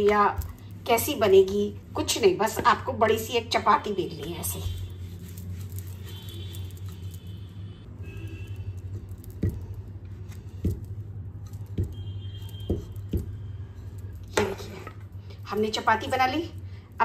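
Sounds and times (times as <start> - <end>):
rolling pin rolling dough: 0.0 - 7.2, 8.1 - 16.6
low steady hum: 0.0 - 17.0.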